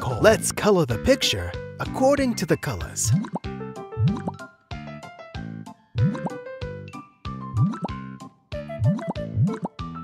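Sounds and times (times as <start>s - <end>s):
background music: 0.0s - 10.0s
cartoon plop sound effects: 8.8s - 9.8s.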